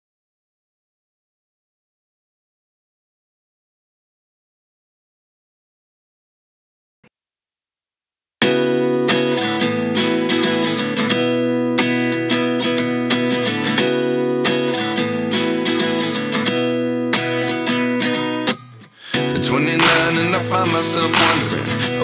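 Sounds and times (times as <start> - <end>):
strummed acoustic guitar: 8.4 - 22.0.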